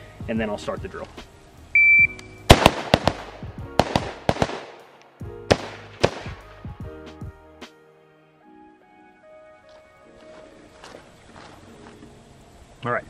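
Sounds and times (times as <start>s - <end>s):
rifle shots fired rapidly: 2.5s - 4.8s, 5.5s - 6.4s.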